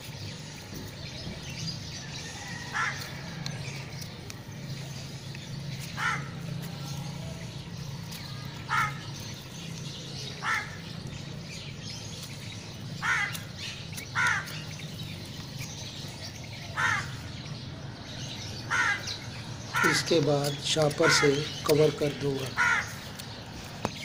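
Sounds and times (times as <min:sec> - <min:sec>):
crow cawing: 0:02.3 - 0:03.4, 0:05.9 - 0:06.4, 0:08.7 - 0:09.2, 0:10.2 - 0:10.9, 0:13.0 - 0:14.7, 0:16.7 - 0:17.3, 0:18.7 - 0:20.1, 0:20.9 - 0:21.6, 0:22.5 - 0:23.1.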